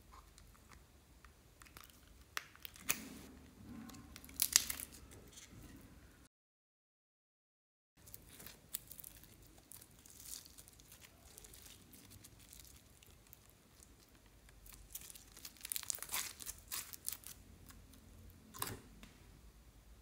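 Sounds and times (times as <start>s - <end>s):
sticky slime tearing: 4.2s - 5.4s, 8.0s - 17.9s.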